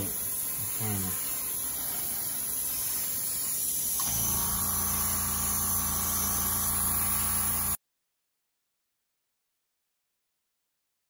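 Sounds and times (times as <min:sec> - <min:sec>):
airbrush spraying hiss: 0:00.0 - 0:07.8
compressor motor humming: 0:03.8 - 0:07.8.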